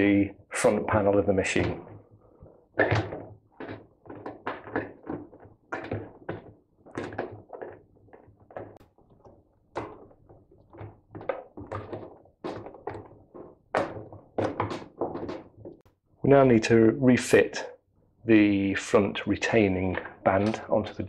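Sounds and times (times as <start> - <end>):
rubber seal thunks and taps: 1.6 - 16.0.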